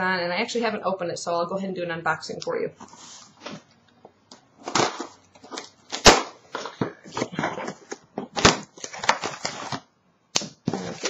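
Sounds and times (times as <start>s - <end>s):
packaging rustling and tearing: 4.6s - 11.0s.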